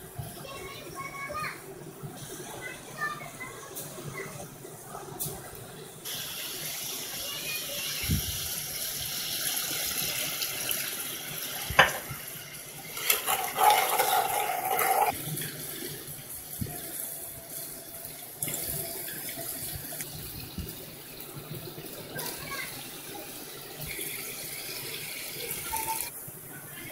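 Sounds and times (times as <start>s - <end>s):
meat frying in hot oil: 6.0s - 26.2s
water poured into hot oil: 6.0s - 26.2s.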